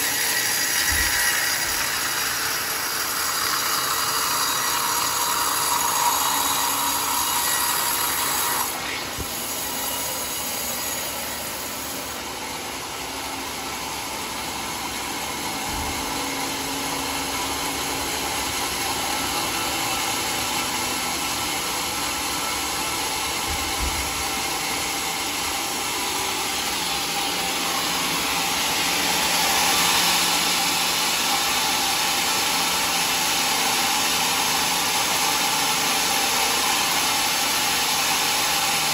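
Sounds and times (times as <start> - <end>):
band sawmill sawing log: 0.0 - 38.9.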